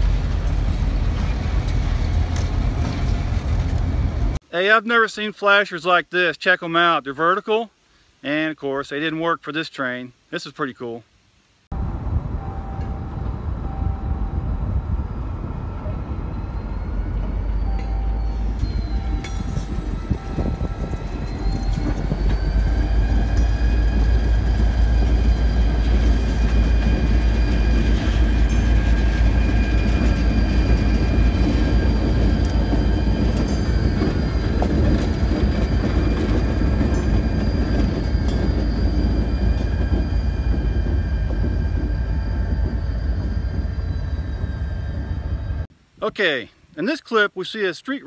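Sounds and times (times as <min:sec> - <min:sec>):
diesel locomotive engine rumble: 0:00.0 - 0:04.5, 0:11.7 - 0:45.7
high-pitched squeal: 0:11.8 - 0:45.7.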